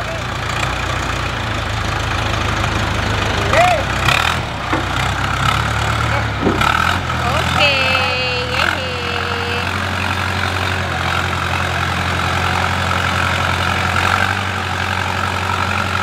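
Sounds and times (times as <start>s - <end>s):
diesel engine running: 0.0s - 16.0s
wavering high call: 7.5s - 10.0s.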